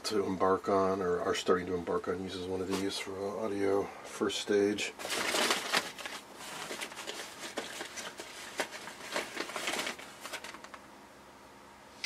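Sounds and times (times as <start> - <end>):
cardboard boxes rustling and knocking: 5.0 - 10.7.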